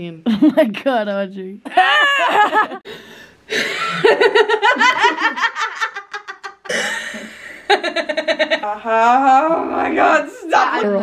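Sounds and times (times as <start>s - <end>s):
girls laughing: 1.6s - 2.9s, 3.5s - 9.1s.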